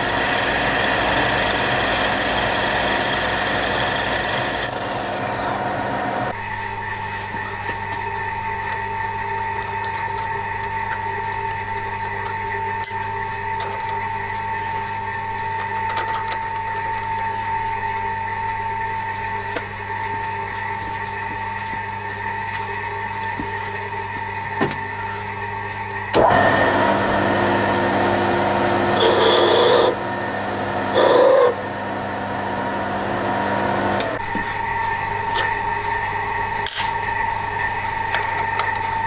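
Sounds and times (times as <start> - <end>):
drill bit cutting metal: 0.0 - 5.6, 29.0 - 30.0
drill press humming: 0.0 - 6.6.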